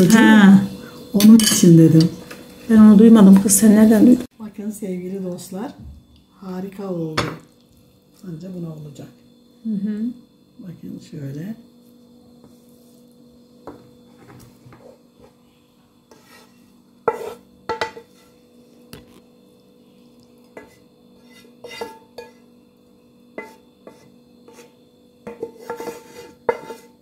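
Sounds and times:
utensil scraping a frying pan: 16.1s - 18.8s, 20.5s - 22.5s, 23.3s - 27.0s.

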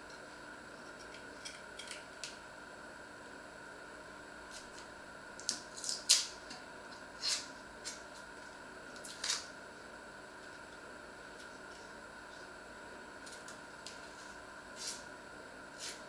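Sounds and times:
faint steady hum: 0.0s - 16.0s
vegetable peeler scraping peel: 7.2s - 8.0s, 14.8s - 15.1s.

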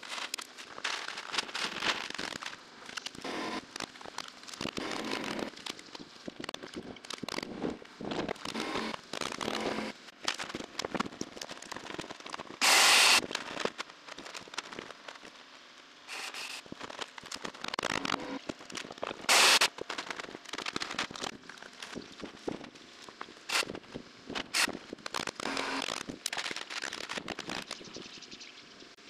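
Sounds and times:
loud bursts of noise: 12.6s - 13.2s, 19.2s - 19.7s, 23.5s - 23.8s.

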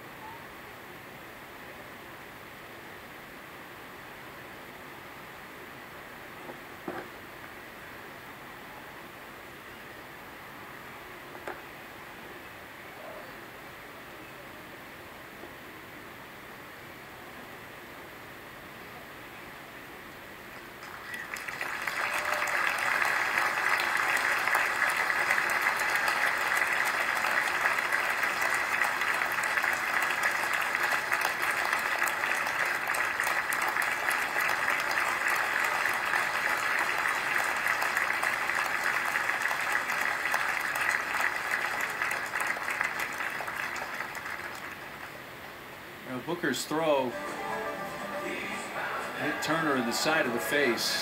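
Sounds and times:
crowd applauding: 20.8s - 45.3s, 46.7s - 51.0s.

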